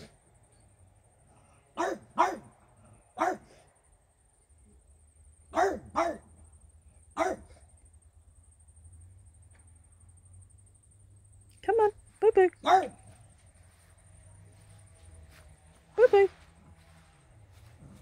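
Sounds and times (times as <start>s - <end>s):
dog barking: 1.8s - 2.5s, 3.2s - 3.6s, 5.5s - 6.3s, 7.2s - 7.6s, 12.6s - 13.1s.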